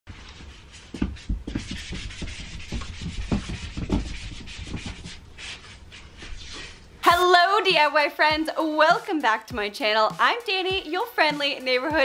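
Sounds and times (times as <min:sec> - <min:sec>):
rubbing and scraping: 0:00.1 - 0:07.0.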